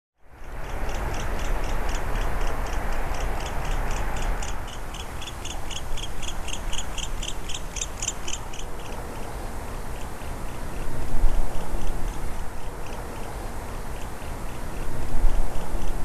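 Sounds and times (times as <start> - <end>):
steady rushing background: 0.3 - 16.0.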